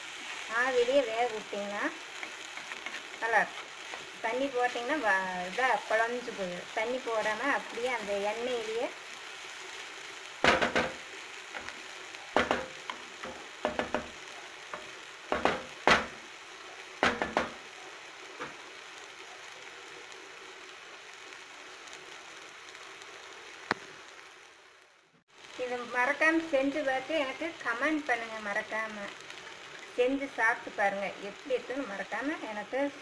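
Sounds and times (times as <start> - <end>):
food sizzling in oil: 0.0 - 33.0
spoon scraping a pan: 2.1 - 4.2.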